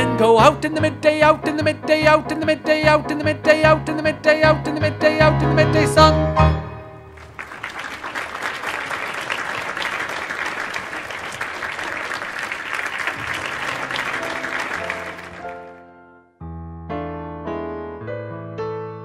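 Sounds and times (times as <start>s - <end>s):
music: 0.0s - 7.2s, 13.2s - 19.0s
audience applause: 7.2s - 15.9s.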